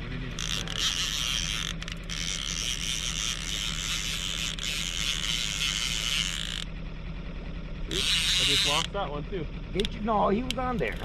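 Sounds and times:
low motor hum: 0.0s - 11.0s
fishing reel whirring rattle: 0.3s - 6.8s, 7.9s - 9.0s.

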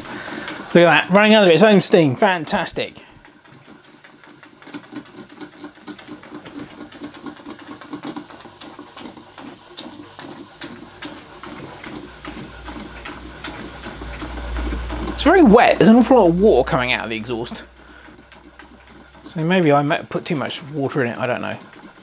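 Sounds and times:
model steam engine exhaust puffs: 0.0s - 1.3s, 6.3s - 20.1s
steam hiss: 0.0s - 3.2s, 7.2s - 18.6s.

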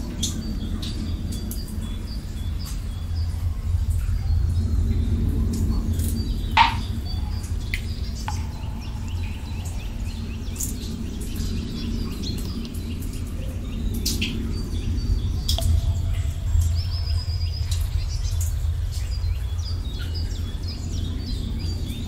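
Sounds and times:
low rumble of ambience: 0.0s - 22.0s
small birds chirping: 0.0s - 22.0s.

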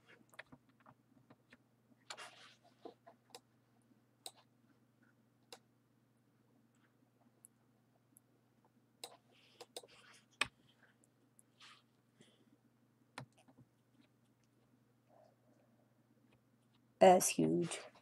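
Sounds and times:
soft rustles: 0.0s - 3.2s, 9.2s - 12.5s
faint low hum: 0.0s - 18.0s
computer mouse clicks: 4.2s - 4.5s, 9.0s - 10.6s.

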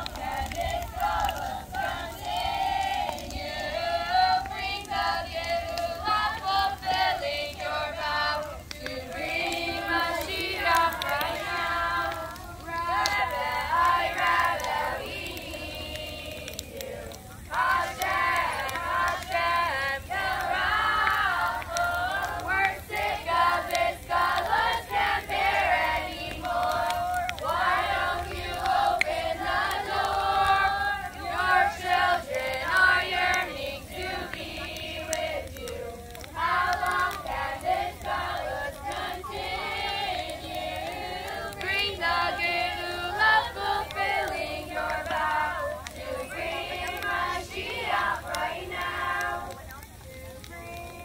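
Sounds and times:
girls singing in chorus: 0.0s - 49.7s.

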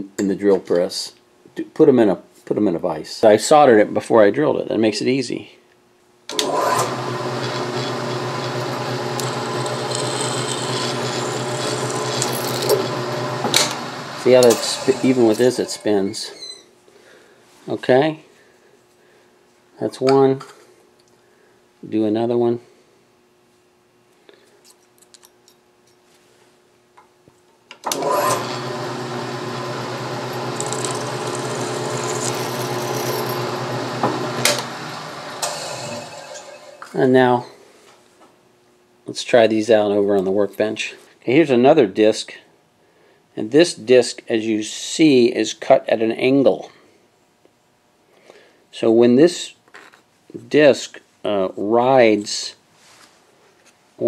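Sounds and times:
milling machine motor humming: 6.7s - 15.8s, 27.9s - 36.8s
drill bit scraping metal: 7.3s - 16.0s, 28.2s - 36.8s.

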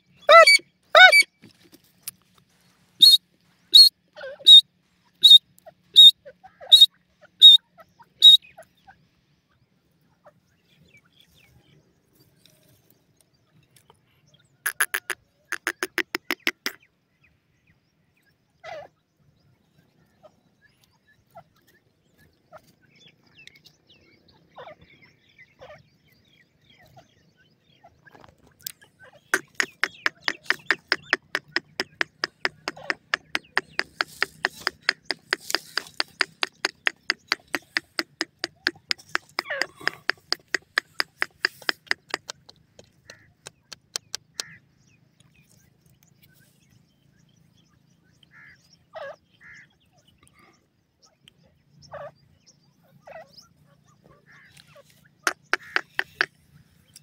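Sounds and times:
francolin calling: 0.0s - 1.3s, 3.0s - 4.6s, 5.2s - 8.6s, 14.7s - 16.8s, 28.7s - 44.6s, 54.3s - 57.0s.

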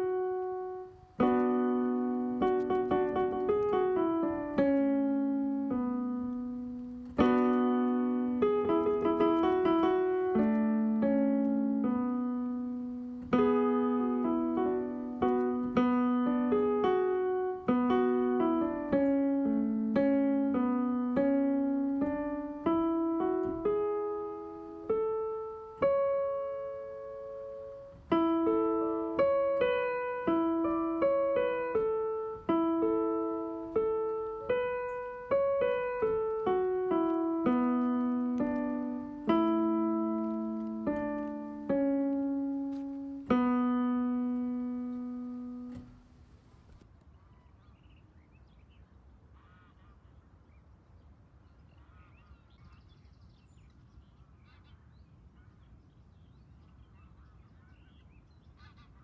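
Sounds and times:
slow keyboard melody: 0.0s - 46.8s
faint background noise: 0.0s - 59.0s.

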